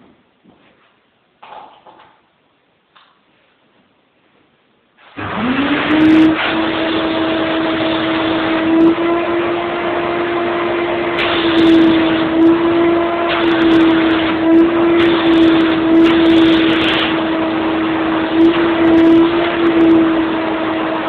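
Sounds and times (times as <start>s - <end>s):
vacuum cleaner motor whine: 5.0s - 21.0s
vacuum nozzle suction on carpet: 5.0s - 21.0s.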